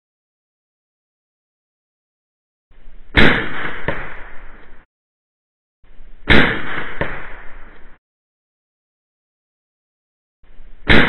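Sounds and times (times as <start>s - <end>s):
air pistol shot crack: 3.1s - 4.8s, 6.2s - 8.0s.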